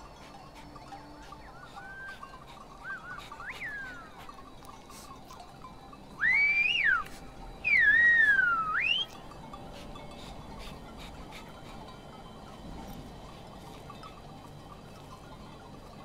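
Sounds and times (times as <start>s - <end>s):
whistled speech: 1.4s - 2.2s, 2.8s - 4.1s, 6.2s - 9.2s.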